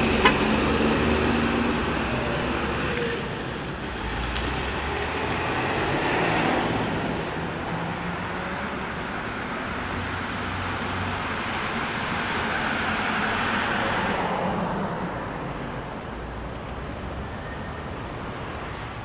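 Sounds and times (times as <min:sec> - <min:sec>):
vehicle passing by: 0:00.0 - 0:08.9
steady road traffic: 0:00.0 - 0:19.0.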